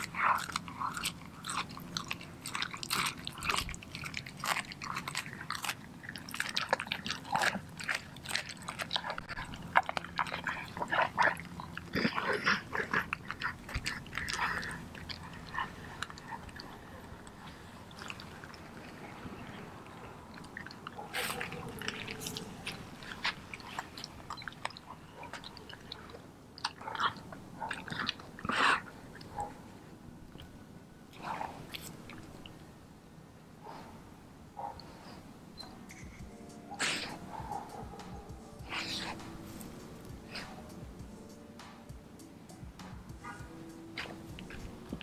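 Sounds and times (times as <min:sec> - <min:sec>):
dog crunching raw chicken: 0:00.0 - 0:30.6, 0:31.2 - 0:32.7, 0:43.1 - 0:45.0.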